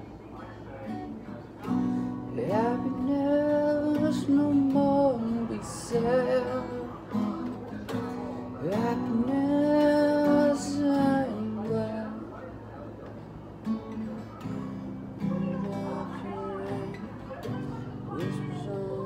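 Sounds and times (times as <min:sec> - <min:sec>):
guitar strummed and picked: 0:00.6 - 0:19.0
man singing wordless held notes: 0:02.2 - 0:07.2, 0:08.5 - 0:12.4.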